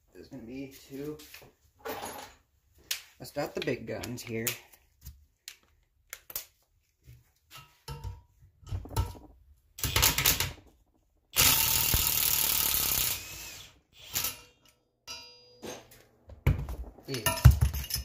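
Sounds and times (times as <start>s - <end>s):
impact wrench hammering: 11.4s - 13.4s
metal clinks and knocks: 16.6s - 18.0s.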